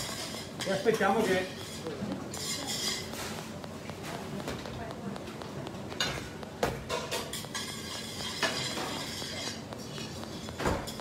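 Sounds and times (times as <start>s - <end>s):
tongs scraping in metal pan: 0.0s - 3.4s, 7.1s - 11.0s.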